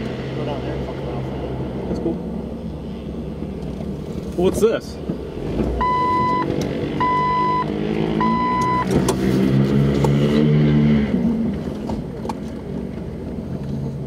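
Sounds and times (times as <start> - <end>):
car engine from inside cabin: 0.0 - 14.0
electronic beeps: 5.8 - 8.9.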